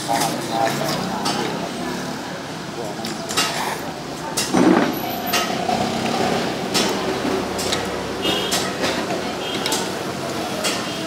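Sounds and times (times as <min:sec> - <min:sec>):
steady background din: 0:00.0 - 0:11.0
dishes and utensils clinking: 0:06.7 - 0:11.0.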